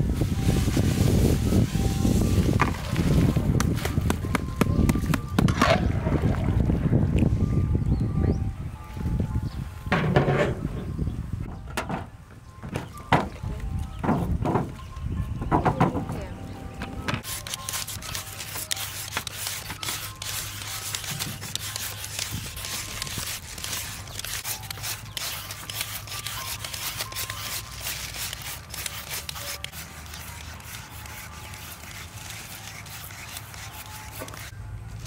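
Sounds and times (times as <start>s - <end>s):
peelers rasping through sweet potatoes: 17.2s - 34.6s.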